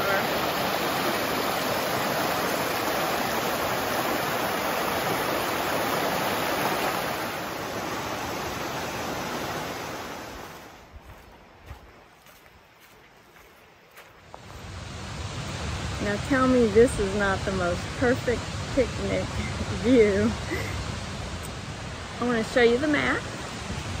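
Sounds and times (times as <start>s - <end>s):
river rapids rushing over rocks: 0.0s - 10.5s.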